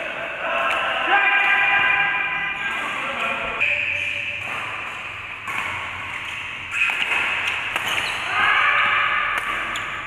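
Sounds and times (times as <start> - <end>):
racket hitting shuttlecock: 2.7 - 10.0.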